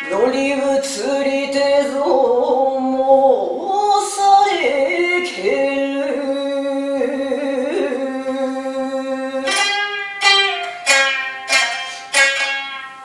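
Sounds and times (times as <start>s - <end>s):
lute plucked with plectrum: 0.0s - 1.5s, 9.3s - 13.0s
person singing: 0.0s - 10.5s.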